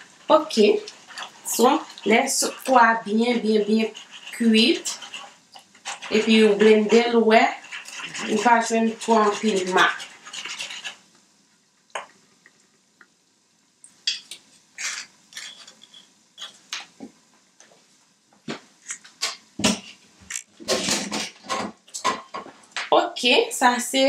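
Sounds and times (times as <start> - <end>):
wooden spoon scraping a saucepan: 0.0 - 11.1, 14.8 - 16.9.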